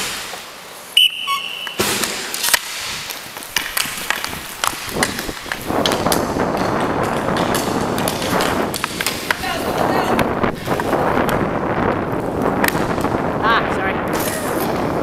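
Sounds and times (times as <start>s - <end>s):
sticks and puck clacking: 0.0s - 13.4s, 14.0s - 15.0s
skate wheels rolling on rink floor: 0.0s - 15.0s
short high whistle blast: 1.0s - 1.8s.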